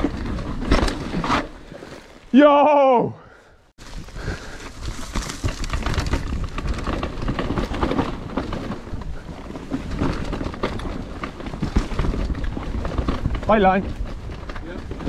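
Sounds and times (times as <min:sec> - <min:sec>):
bike rattling and knocking: 0:00.0 - 0:02.1, 0:03.8 - 0:15.0
tyres rolling over dirt: 0:00.0 - 0:02.6, 0:03.8 - 0:15.0.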